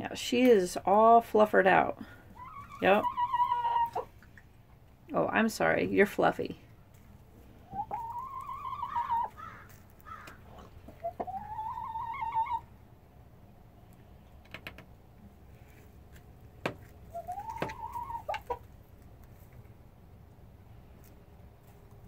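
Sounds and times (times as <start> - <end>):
hens calling: 2.3 - 4.3, 7.6 - 12.7, 17.1 - 18.7.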